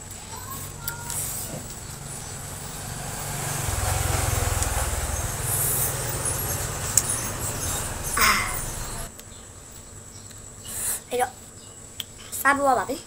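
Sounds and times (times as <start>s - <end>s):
vehicle engine running low: 0.0s - 9.1s.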